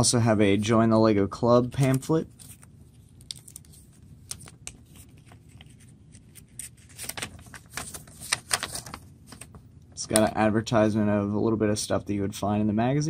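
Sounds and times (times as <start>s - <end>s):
paper rustling and crackling: 1.8s - 9.6s.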